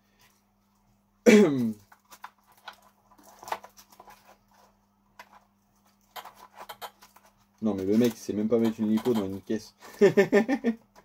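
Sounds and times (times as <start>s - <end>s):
faint steady hum: 0.0s - 11.0s
plastic parts clicking and rustling: 1.6s - 10.0s.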